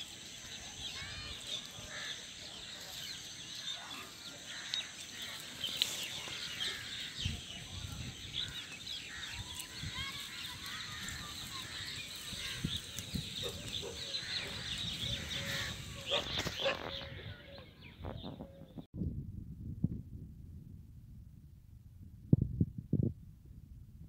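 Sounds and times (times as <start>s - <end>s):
birds chirping: 0.0s - 18.9s.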